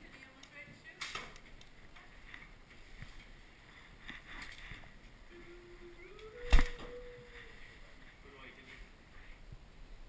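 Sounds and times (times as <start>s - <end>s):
rustling and ticks of bow handling: 0.2s - 5.5s.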